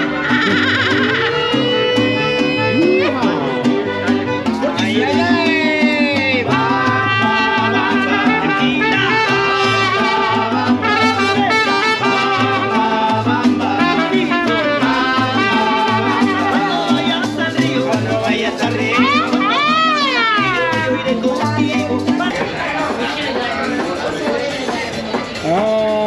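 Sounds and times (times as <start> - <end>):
trumpet playing melody: 0.0 - 18.0, 18.7 - 21.2
bass guitar line: 0.0 - 26.0
strummed guitars: 0.0 - 26.0.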